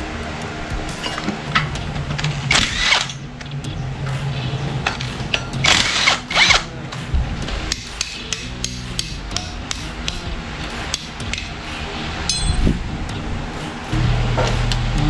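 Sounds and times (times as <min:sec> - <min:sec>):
low hum: 0:00.0 - 0:15.0
metal parts clicking: 0:02.5 - 0:03.2
power tool running: 0:02.5 - 0:03.2, 0:05.1 - 0:06.7.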